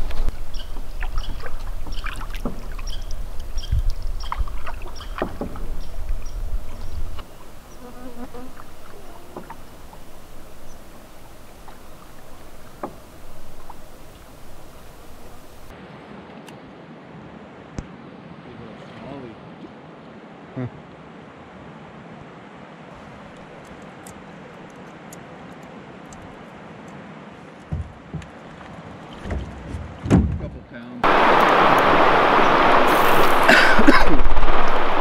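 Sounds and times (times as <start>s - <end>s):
paddle knocking canoe hull: 0.0s - 7.6s, 8.2s - 15.7s, 27.7s - 31.5s
paddle strokes in water: 0.0s - 16.4s, 23.0s - 30.1s, 31.0s - 35.0s.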